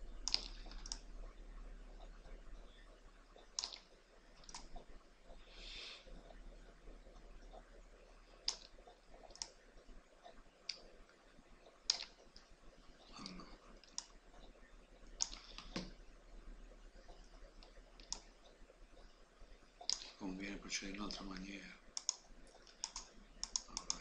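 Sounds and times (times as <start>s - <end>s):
computer mouse clicking: 0.2s - 1.1s, 2.0s - 5.0s, 8.4s - 10.9s, 11.6s - 14.6s, 15.2s - 16.0s, 17.0s - 19.1s, 19.8s - 20.2s, 20.9s - 24.0s.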